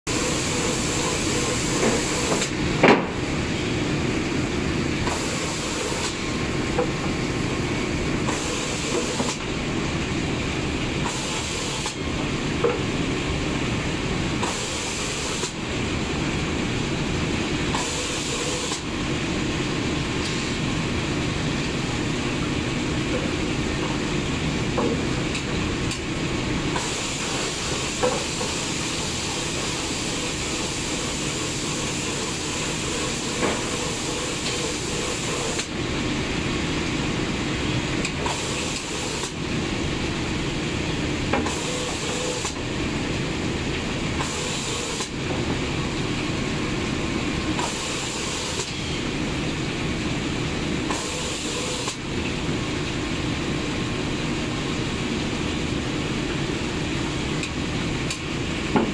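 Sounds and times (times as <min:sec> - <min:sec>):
spray-painting machine hum: 0:00.1 - 0:02.7, 0:05.0 - 0:06.8, 0:08.2 - 0:09.8, 0:10.6 - 0:12.1, 0:14.4 - 0:15.8, 0:17.6 - 0:18.9, 0:26.6 - 0:35.8, 0:38.2 - 0:39.4, 0:41.2 - 0:42.6, 0:44.2 - 0:45.2, 0:47.6 - 0:48.9, 0:50.8 - 0:52.1.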